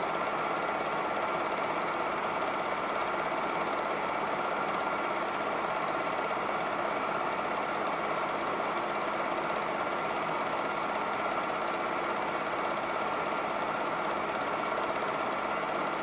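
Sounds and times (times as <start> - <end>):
film projector clattering: 0.0 - 16.0.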